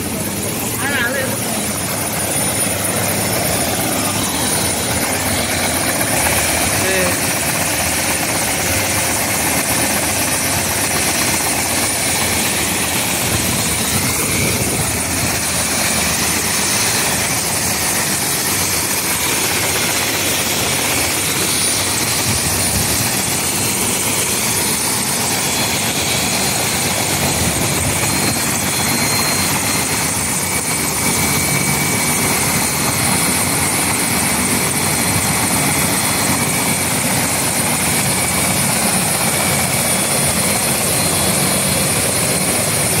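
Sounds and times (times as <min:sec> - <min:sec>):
helicopter rotor noise: 0:00.0 - 0:43.0
turbine high whine: 0:00.0 - 0:43.0.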